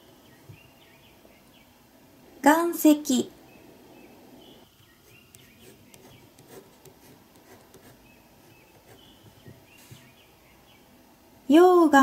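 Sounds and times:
pen scratching on paper: 5.0 - 10.1
soft taps: 8.8 - 10.1.

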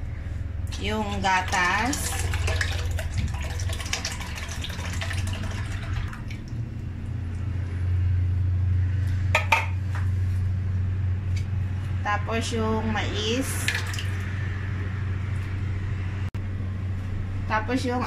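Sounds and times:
steady low hum: 0.0 - 18.0
milk pouring and splashing: 0.7 - 6.6, 13.6 - 14.2.

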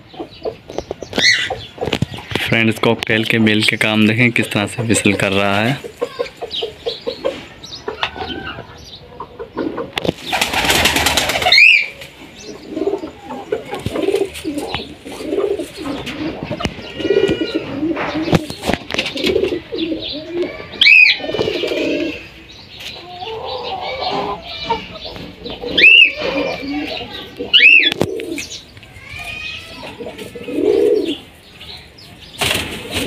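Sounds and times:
pigeons cooing: 0.0 - 2.4, 3.5 - 33.0
wings flapping: 10.0 - 12.1, 32.4 - 33.0.

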